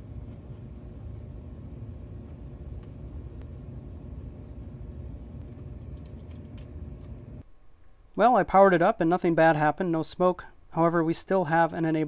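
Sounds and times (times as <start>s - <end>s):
low background rumble: 0.0s - 8.0s.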